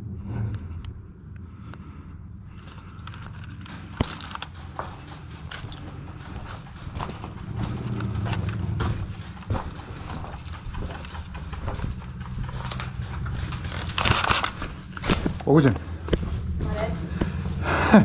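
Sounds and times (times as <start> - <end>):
low steady rumble: 0.0 - 18.0
sharp clicks and knocks: 3.0 - 16.5.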